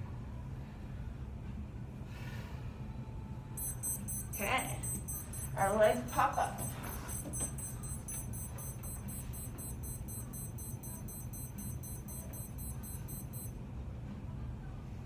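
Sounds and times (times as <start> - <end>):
high-pitched electronic pulsing: 3.6 - 13.5
low hum: 3.6 - 13.6.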